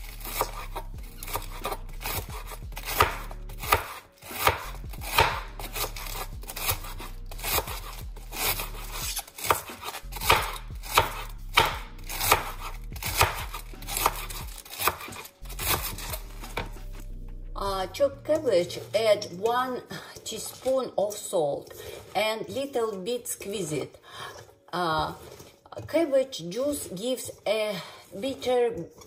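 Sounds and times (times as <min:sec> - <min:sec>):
knife shredding cabbage: 0:00.0 - 0:17.0, 0:18.6 - 0:22.6, 0:24.3 - 0:26.1.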